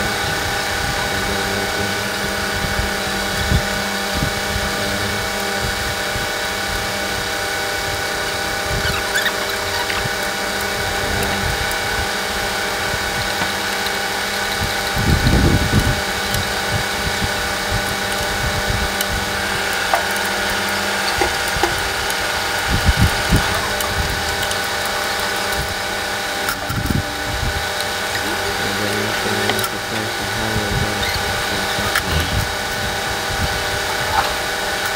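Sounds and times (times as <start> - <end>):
steady mechanical hum: 0.0 - 34.9.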